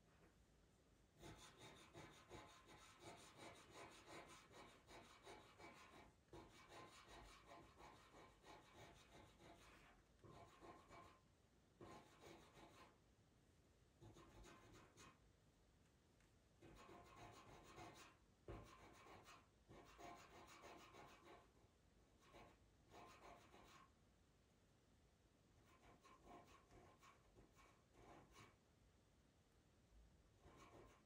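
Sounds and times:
pencil scratching on paper: 1.2 - 11.2, 11.8 - 13.0, 14.0 - 15.2, 16.6 - 21.6, 22.2 - 23.9, 25.6 - 28.6, 30.4 - 31.0.

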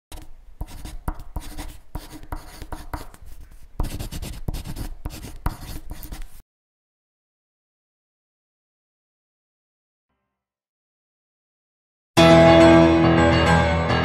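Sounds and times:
pen scratching on paper: 0.1 - 6.4
pen taps: 0.1 - 6.4.

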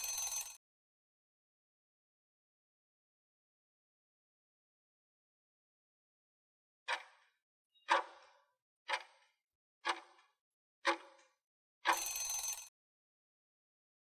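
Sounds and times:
clock-like ticking: 6.9 - 12.4.

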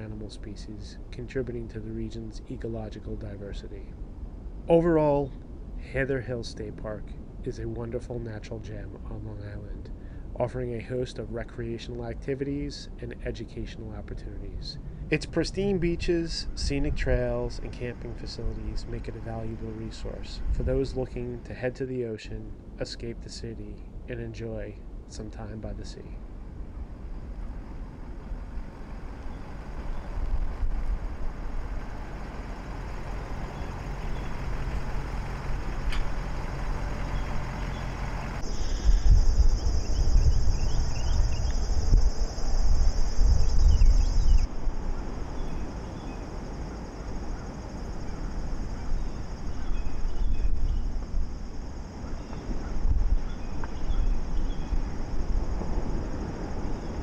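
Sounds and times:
wind buffeting microphone: 13.2 - 21.4, 26.2 - 57.0
high steady shrill: 26.7 - 57.0
faint chirps: 31.6 - 55.4.

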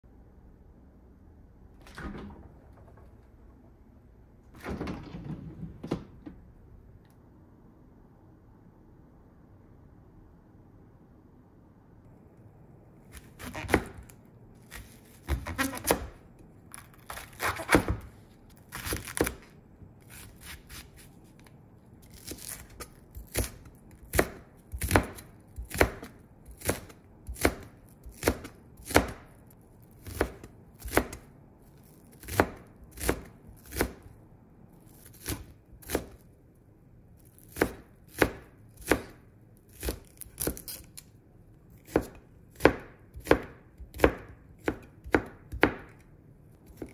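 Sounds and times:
knife slicing onion: 13.1 - 34.1, 34.8 - 36.3, 37.2 - 46.9
knife chopping on cutting board: 13.2 - 14.1, 14.7 - 16.2, 17.0 - 18.1, 18.7 - 19.5, 22.2 - 29.3, 30.0 - 31.2, 32.2 - 34.0, 35.0 - 36.2, 37.4 - 40.8, 41.8 - 46.0, 46.6 - 46.9.

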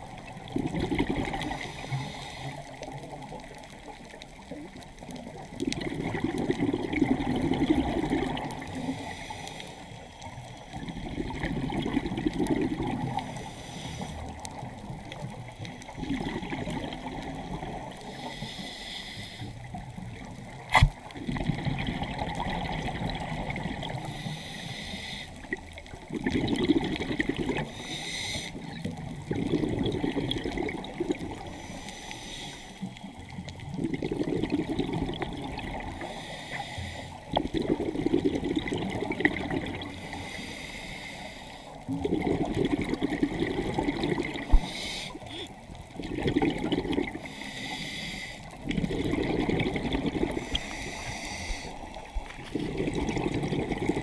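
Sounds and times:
water trickling and splashing: 0.0 - 18.4, 19.7 - 24.3, 32.8 - 40.2.

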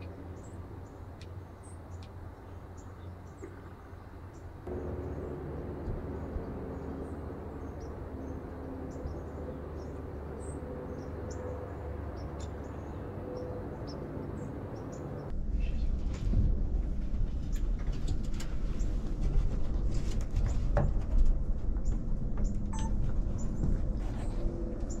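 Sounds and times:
small birds chirping: 0.0 - 15.9
low rumble: 4.6 - 11.3, 13.8 - 25.0.

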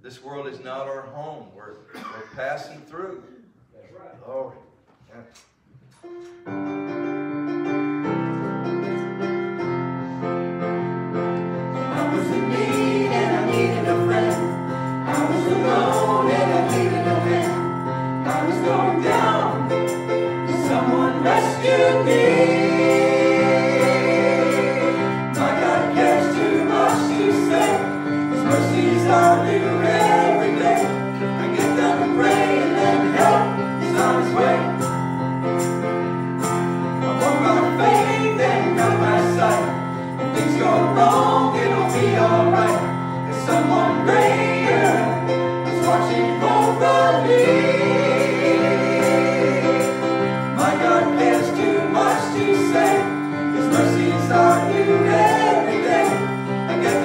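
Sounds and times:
electric keyboard chords: 6.0 - 57.0
group singing gospel song: 11.6 - 57.0.

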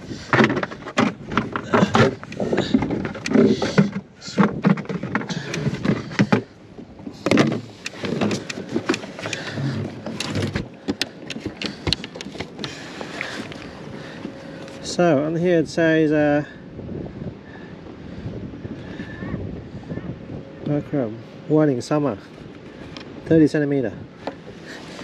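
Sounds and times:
knocks and clatter in a boat: 0.0 - 15.8, 21.8 - 25.0.

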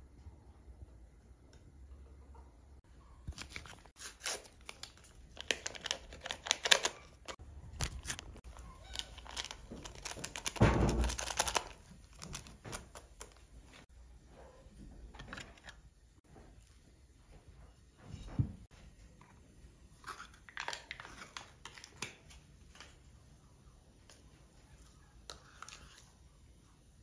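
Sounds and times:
paper sachet crinkling and tearing: 3.3 - 13.4
thump: 10.6 - 11.1.

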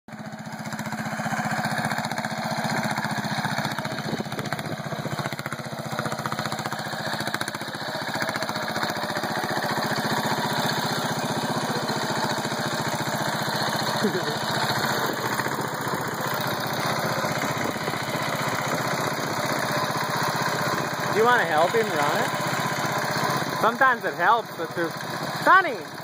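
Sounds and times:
tree saw engine running: 0.1 - 26.0.

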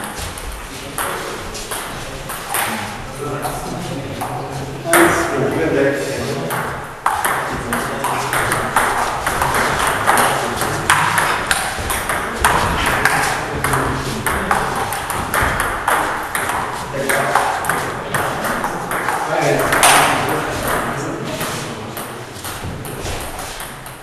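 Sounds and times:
ball bouncing on table: 0.0 - 2.8, 6.5 - 24.0
ping pong ball hitting bats: 0.0 - 3.6, 4.2 - 5.5, 6.4 - 24.0
background voices: 16.3 - 22.6.

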